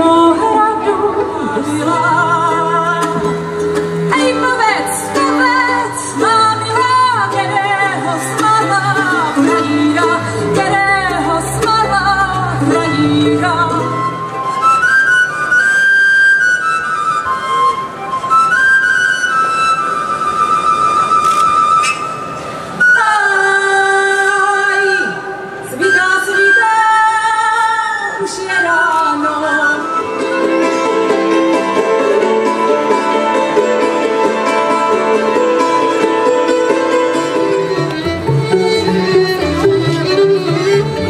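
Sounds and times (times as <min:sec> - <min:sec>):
woman singing with vibrato: 0:00.0 - 0:14.6, 0:22.8 - 0:35.3
mandolin: 0:00.0 - 0:41.0
violin: 0:00.0 - 0:41.0.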